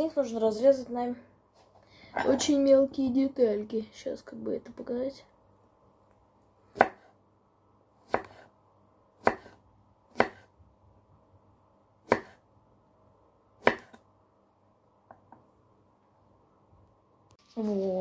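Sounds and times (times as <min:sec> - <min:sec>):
knife chopping cucumber: 0:06.7 - 0:07.1, 0:08.0 - 0:08.5, 0:09.2 - 0:10.5, 0:12.0 - 0:12.4, 0:13.6 - 0:14.0.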